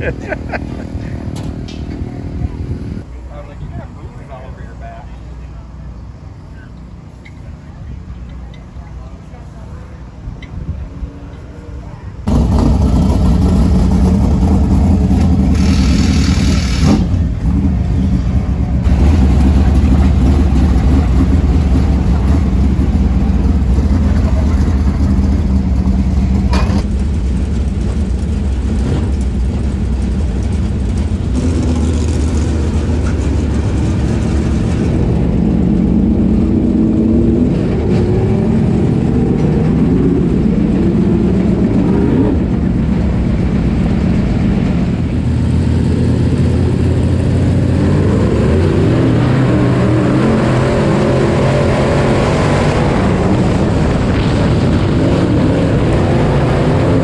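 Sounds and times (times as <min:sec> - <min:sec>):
race car engine revving: 0:12.3 - 0:26.9, 0:28.6 - 0:57.0.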